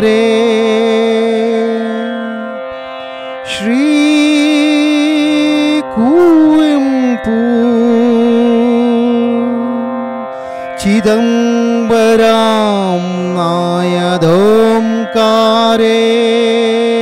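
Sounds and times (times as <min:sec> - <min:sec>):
person singing devotional hymn: 0:03.5 - 0:17.0.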